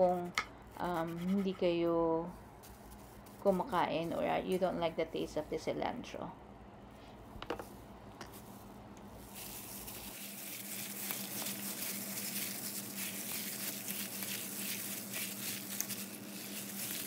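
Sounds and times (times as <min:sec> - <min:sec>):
plastic glove crinkling: 0:02.6 - 0:05.4, 0:08.3 - 0:17.0
wet squelching of raw chicken: 0:09.3 - 0:17.0.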